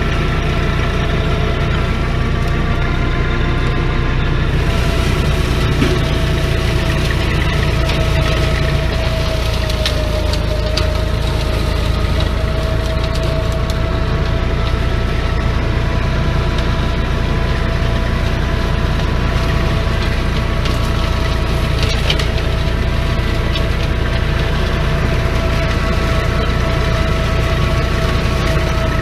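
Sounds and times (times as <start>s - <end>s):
mid-pitched hum: 0.0s - 29.0s
mulcher shredding brush: 0.0s - 29.0s
tractor engine rumble: 0.0s - 29.0s
material cracking: 4.8s - 15.2s.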